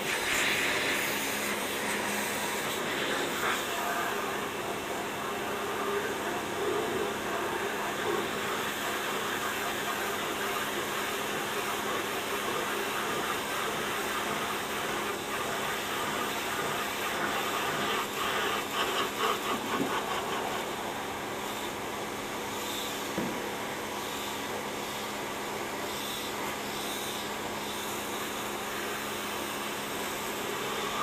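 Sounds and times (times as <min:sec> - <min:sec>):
pressure washer water jet hissing: 0:00.0 - 0:06.4, 0:07.2 - 0:20.8.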